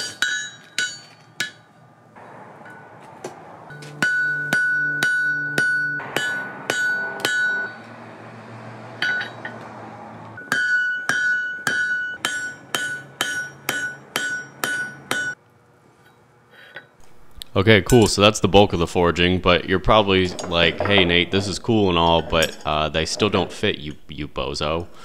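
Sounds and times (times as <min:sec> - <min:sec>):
hammer striking steel on anvil: 0:00.0 - 0:01.8, 0:02.5 - 0:08.0, 0:09.0 - 0:09.7, 0:10.4 - 0:15.4
anvil ringing: 0:00.0 - 0:08.1, 0:09.0 - 0:09.6, 0:10.4 - 0:15.4.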